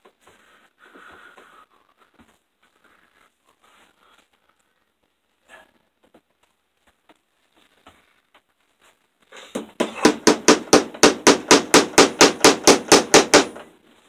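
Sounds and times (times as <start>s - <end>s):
hammer tapping staple: 9.6s - 13.6s.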